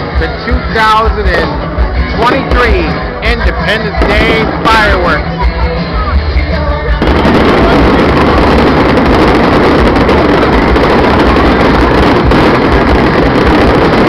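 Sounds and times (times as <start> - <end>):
wind buffeting microphone: 7.0 - 14.0.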